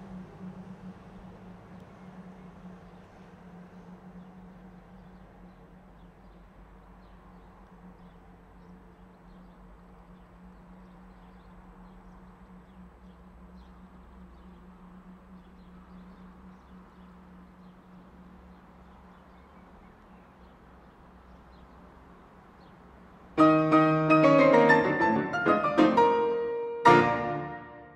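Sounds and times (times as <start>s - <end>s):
faint low hum: 0.0s - 27.9s
faint high ticks: 1.3s - 2.1s
piano music: 23.4s - 27.9s.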